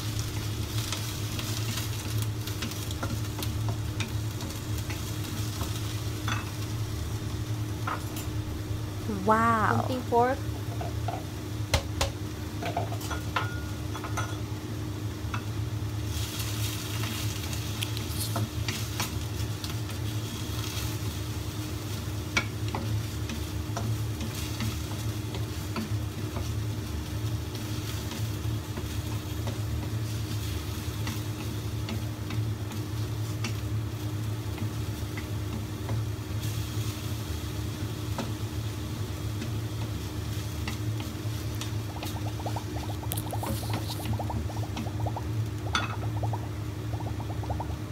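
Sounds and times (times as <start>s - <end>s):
food sizzling in a wok: 0.0s - 47.9s
low hum: 41.6s - 47.9s.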